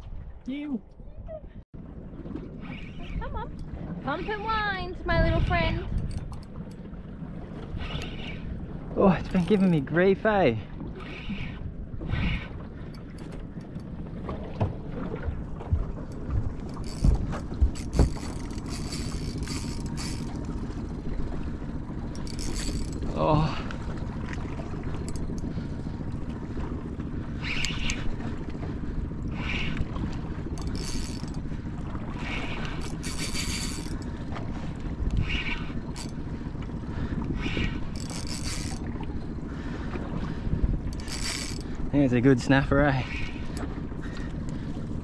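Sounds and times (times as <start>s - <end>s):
water noise: 0.0s - 45.0s
wind on microphone: 2.6s - 6.4s.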